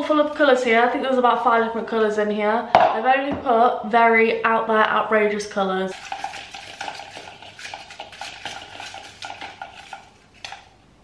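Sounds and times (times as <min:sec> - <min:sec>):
paper slips rustling in a bowl: 0:05.9 - 0:10.7.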